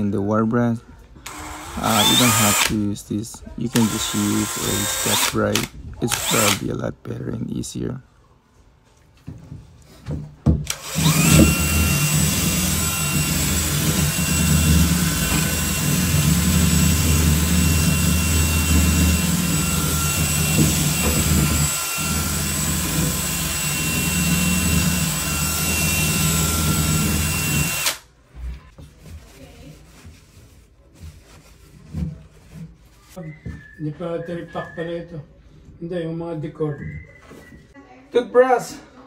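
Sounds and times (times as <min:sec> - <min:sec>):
drill trigger blips: 0:01.2 - 0:02.8, 0:03.8 - 0:06.6, 0:10.7 - 0:16.1
drill with wire brush whining: 0:01.2 - 0:02.8, 0:03.7 - 0:06.6, 0:10.7 - 0:28.0.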